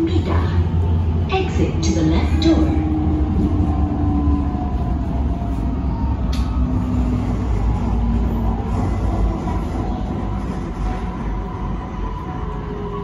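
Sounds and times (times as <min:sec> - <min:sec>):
train rumbling: 0:00.0 - 0:13.0
click: 0:06.3 - 0:06.5.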